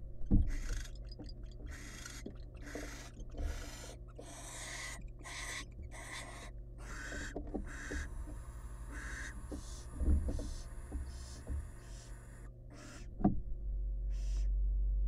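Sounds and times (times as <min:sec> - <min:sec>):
owls hissing: 0:01.7 - 0:13.1.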